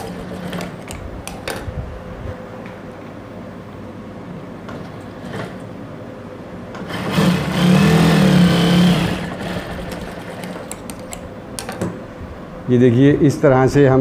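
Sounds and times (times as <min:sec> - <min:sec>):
sewing machine stitching: 0:00.0 - 0:00.8, 0:06.8 - 0:10.8
fan hum: 0:00.0 - 0:14.0.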